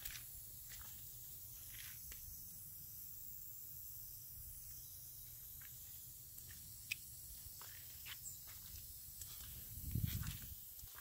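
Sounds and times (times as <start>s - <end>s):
footsteps on wet concrete: 0.0s - 2.2s, 5.6s - 11.0s.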